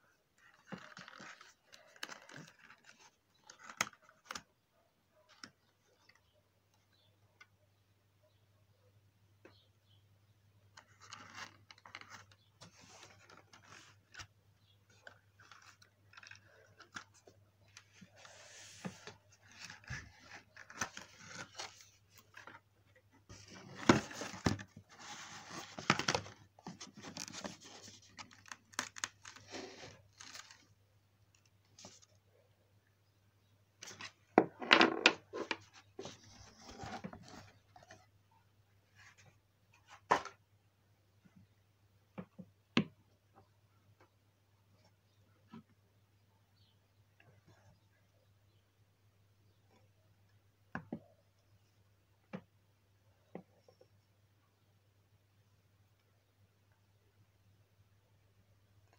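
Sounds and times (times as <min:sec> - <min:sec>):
plastic and cardboard rustling: 0:00.4 - 0:04.4, 0:10.8 - 0:30.8, 0:33.8 - 0:38.1.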